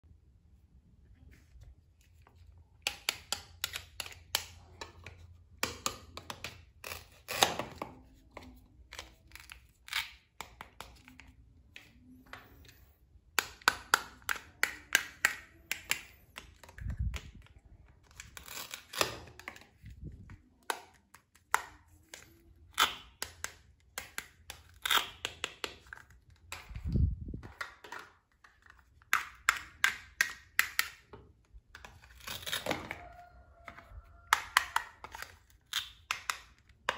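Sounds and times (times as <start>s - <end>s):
velcro tearing: 18.1s - 19.4s, 32.1s - 32.8s
plastic pieces clicking: 34.3s - 36.9s.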